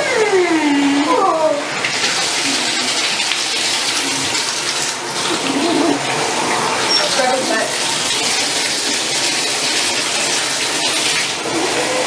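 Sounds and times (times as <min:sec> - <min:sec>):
puppy whining: 0:00.0 - 0:01.7, 0:05.3 - 0:06.2
water running into a bathtub: 0:00.0 - 0:12.0.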